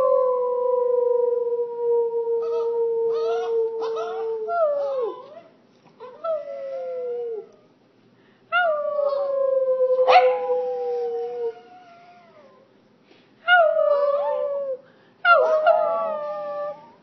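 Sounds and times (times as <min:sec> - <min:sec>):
dog howling: 0:00.0 - 0:05.4, 0:13.6 - 0:17.0.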